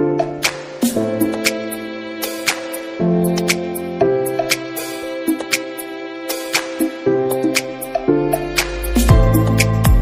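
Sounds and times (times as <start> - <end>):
instrumental background music: 0.0 - 10.0
deep bass: 8.7 - 10.0.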